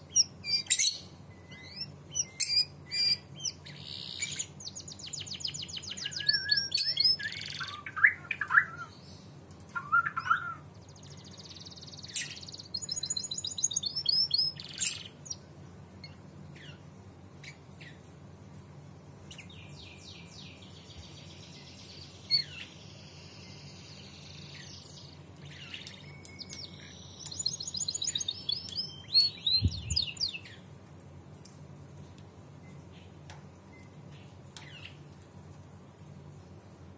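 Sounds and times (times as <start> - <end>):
canary trilling and chirping: 0.1 - 8.7, 10.0 - 15.4, 24.1 - 30.6.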